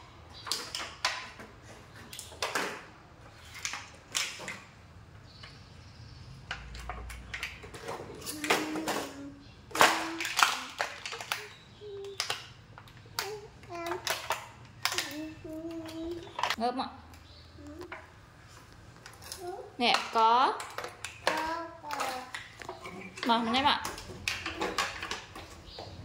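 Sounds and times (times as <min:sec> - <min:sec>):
child voice sounds: 0:08.2 - 0:12.4, 0:13.2 - 0:14.3, 0:14.9 - 0:16.5, 0:17.6 - 0:18.0, 0:19.3 - 0:19.8, 0:21.2 - 0:22.4.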